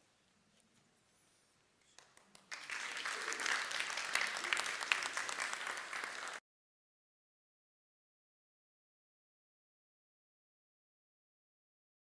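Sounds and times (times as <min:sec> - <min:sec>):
congregation applauding: 0:02.0 - 0:06.4.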